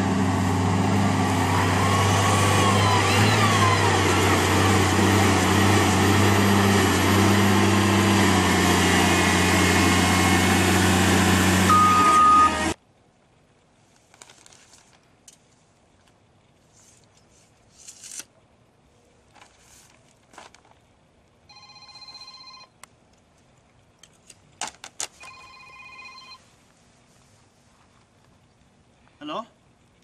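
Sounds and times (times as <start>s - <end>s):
mobile phone ringtone: 11.7s - 12.6s, 21.5s - 22.7s, 25.2s - 26.4s
soft clicks and rustles: 13.8s - 18.3s, 19.2s - 20.9s.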